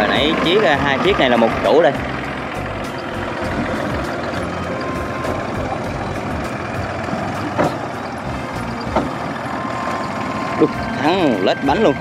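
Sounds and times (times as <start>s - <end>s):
diesel tractor engine running: 0.0s - 12.0s
short metal clanks: 7.4s - 9.3s.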